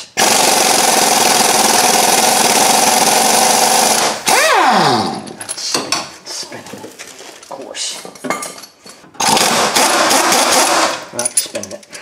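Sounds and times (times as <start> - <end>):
pneumatic impact wrench hammering: 0.0 - 5.4, 9.2 - 11.1.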